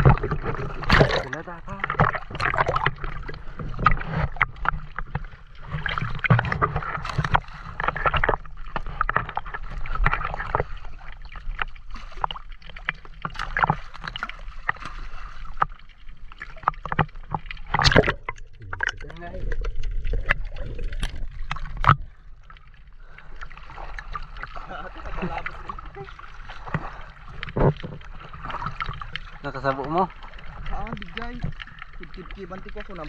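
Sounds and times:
water gurgling: 0.0 - 33.0
water sloshing and splashing: 0.0 - 33.0.

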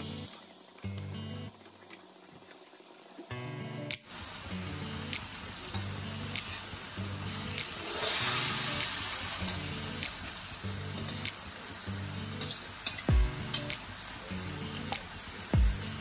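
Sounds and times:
chicken sizzling in a wok: 0.0 - 1.5, 4.0 - 16.0
metal utensils scraping a wok: 7.8 - 9.5, 12.4 - 13.7.

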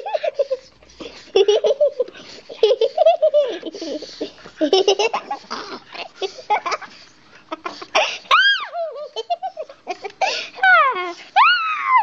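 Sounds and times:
laughter and giggling: 0.0 - 5.5, 6.2 - 8.2, 8.8 - 10.8.

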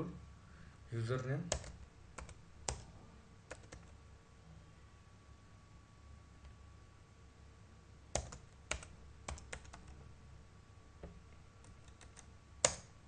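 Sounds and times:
keyboard typing: 1.5 - 2.9, 3.5 - 3.9, 8.1 - 10.0, 11.6 - 12.9.

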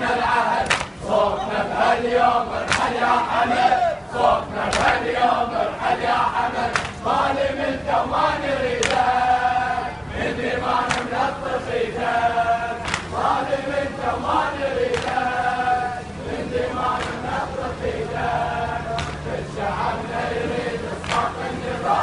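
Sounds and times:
men chanting in unison: 0.0 - 22.0.

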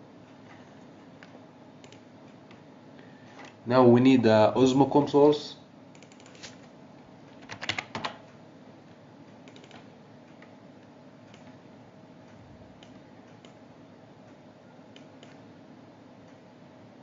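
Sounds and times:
faint background hum: 0.0 - 17.0
keyboard typing: 1.8 - 2.6, 5.9 - 6.6, 7.4 - 8.3, 9.4 - 10.5.

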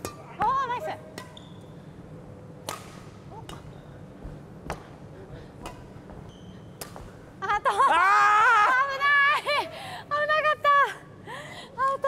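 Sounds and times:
rackets hitting shuttlecock: 0.0 - 1.7, 2.5 - 7.3.

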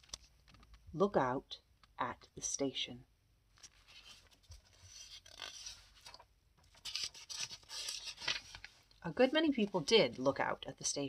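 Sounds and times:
book rustling and rubbing: 3.6 - 10.3.

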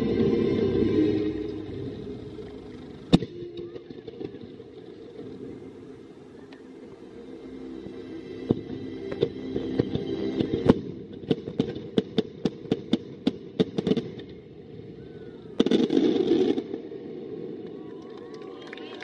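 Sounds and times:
fireworks banging: 0.0 - 6.7, 8.4 - 14.4, 15.6 - 17.8.

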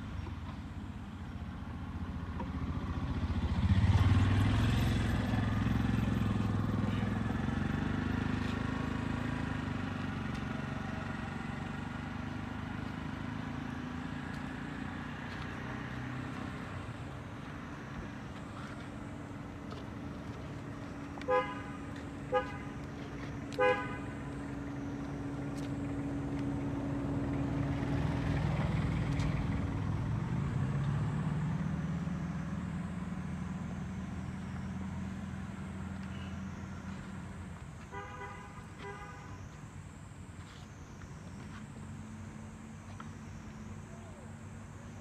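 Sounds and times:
motor vehicle passing: 1.3 - 45.0
vehicle horn beeping: 21.2 - 22.8, 23.5 - 24.3, 37.8 - 39.5.

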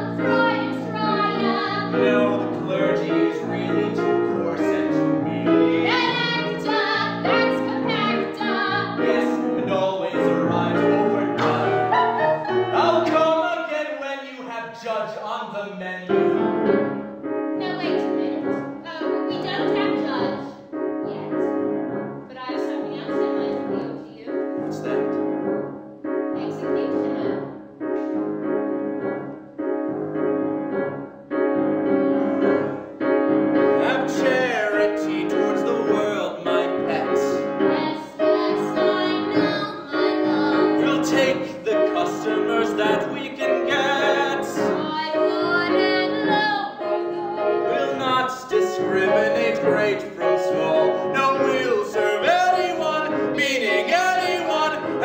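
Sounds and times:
show-tune singing: 0.0 - 13.8, 33.8 - 55.0
piano chords: 0.0 - 14.2, 15.9 - 55.0.

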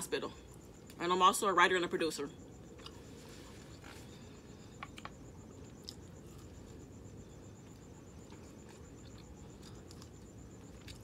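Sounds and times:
low room hum: 0.0 - 11.0
chewing mouth noises: 4.8 - 6.8, 7.6 - 11.0.

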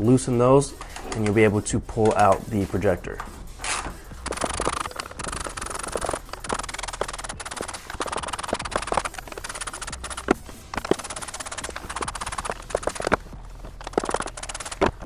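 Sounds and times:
socket ratchet clicking: 3.6 - 15.0.

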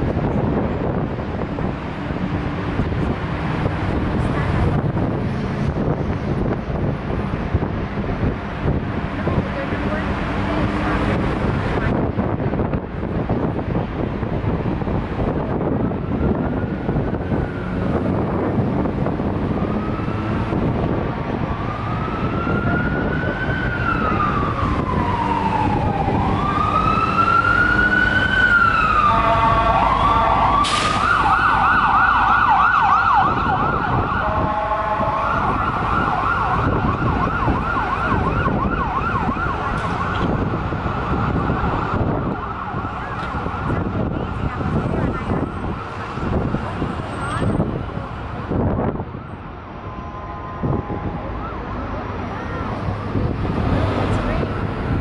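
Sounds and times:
traffic rumble: 0.0 - 55.0
emergency siren wailing and yelping: 15.5 - 55.0.

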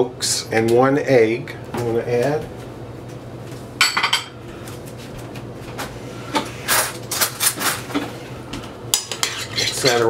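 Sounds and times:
steady low hum: 0.0 - 10.0
spoon and utensils clinking: 9.0 - 10.0.

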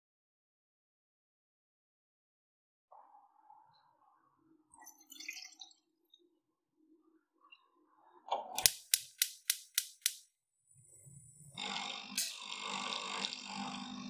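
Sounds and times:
gas hob spark igniter clicking: 8.6 - 10.2, 12.2 - 12.5.

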